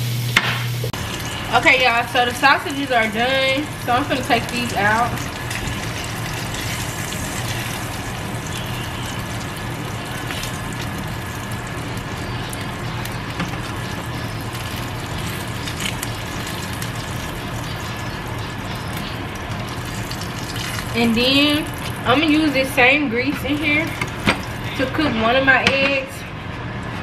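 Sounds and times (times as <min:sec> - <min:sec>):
sausage sizzling in a frying pan: 0:00.0 - 0:25.0
low steady hum: 0:00.0 - 0:27.0.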